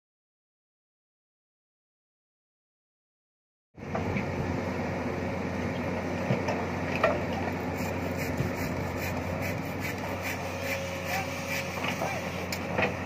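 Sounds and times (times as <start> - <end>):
excavator diesel engine running: 3.8 - 13.0.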